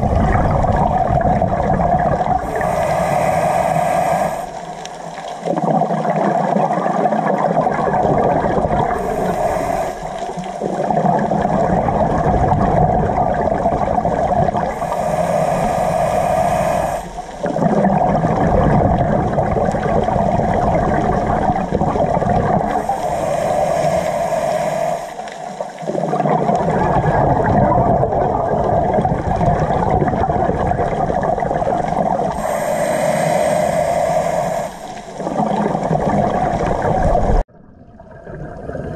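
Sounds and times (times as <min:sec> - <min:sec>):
exhaled bubbles gurgling: 0:00.0 - 0:38.9
regulator hissing inhalations: 0:02.4 - 0:05.1, 0:08.9 - 0:10.8, 0:14.7 - 0:17.4, 0:22.8 - 0:26.1, 0:32.3 - 0:35.6.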